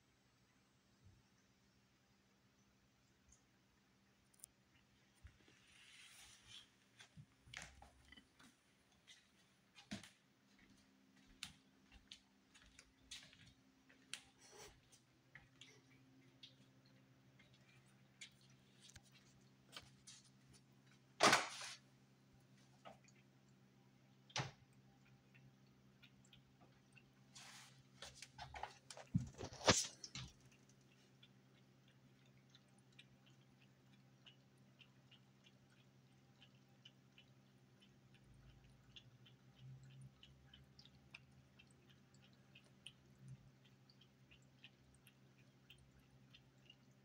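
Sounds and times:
faint clicks and ticks: 2.5 - 5.6, 7.0 - 21.2, 22.1 - 47.0
cat lapping water: 11.5 - 47.0
faint low hum: 21.9 - 47.0.

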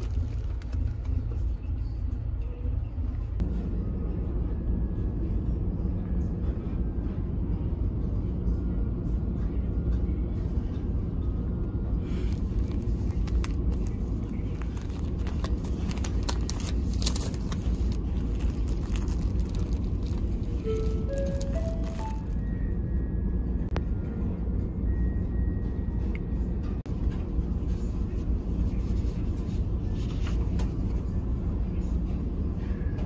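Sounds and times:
plastic packaging crinkling: 0.0 - 1.0, 12.2 - 22.4
ferry engines rumbling: 0.0 - 33.0.

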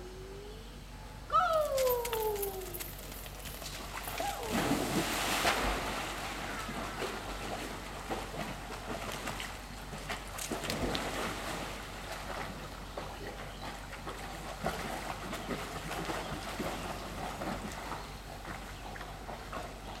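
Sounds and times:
water sloshing: 1.7 - 19.8
dogs splashing in pool: 1.7 - 20.0.

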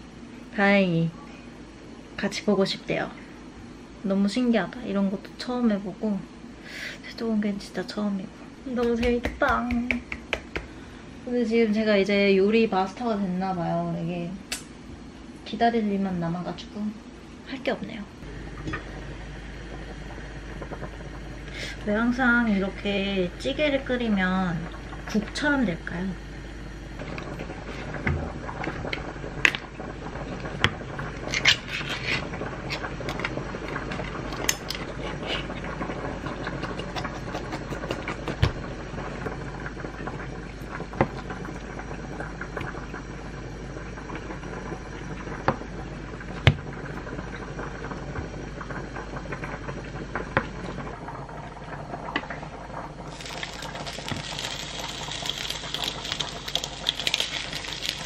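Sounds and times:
can being opened: 53.1 - 58.0
meat sizzling on hot plate: 53.1 - 58.0.

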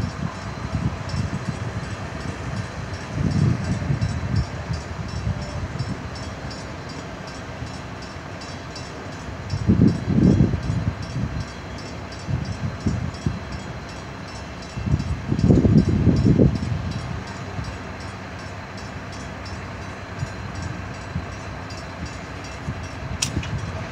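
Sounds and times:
low rumble and buffeting: 0.0 - 7.7, 14.7 - 23.9.

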